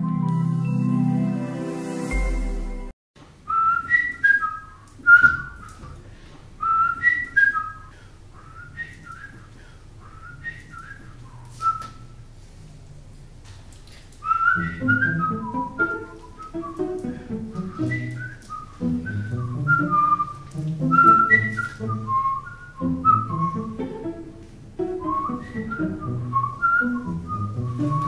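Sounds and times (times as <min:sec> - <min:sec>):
backing music: 0:00.0 - 0:02.9, 0:14.6 - 0:28.0
music sting: 0:00.0 - 0:02.9
man whistling a tune: 0:03.5 - 0:05.9, 0:06.6 - 0:09.5, 0:10.1 - 0:12.0, 0:14.2 - 0:23.8, 0:25.0 - 0:28.0.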